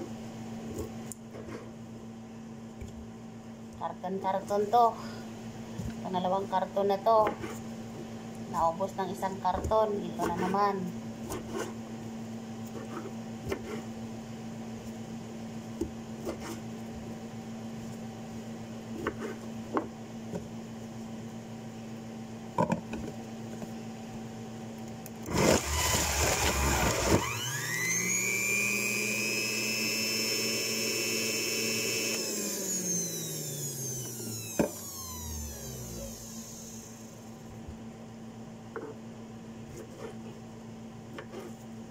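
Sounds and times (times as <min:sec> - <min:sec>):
electric juicer motor whine: 0:25.2 - 0:37.6.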